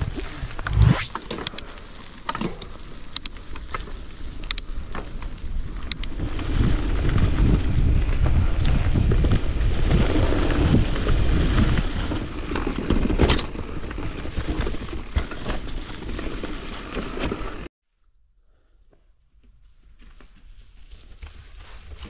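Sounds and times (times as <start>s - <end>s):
bike rumbling and rattling: 0.0s - 17.7s
wind on microphone: 6.2s - 12.4s.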